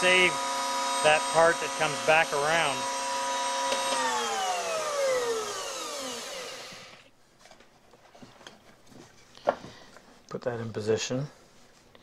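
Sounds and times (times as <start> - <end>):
router motor spinning down: 0.0 - 7.1.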